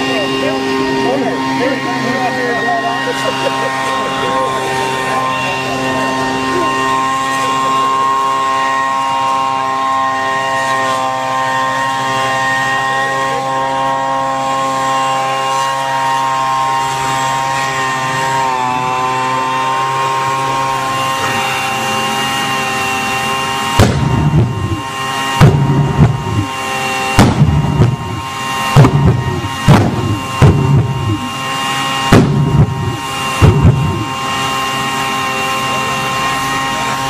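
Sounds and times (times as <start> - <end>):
leaf blower whining: 0.0 - 37.0
pulse jet popping and banging: 23.7 - 31.4, 32.0 - 34.2.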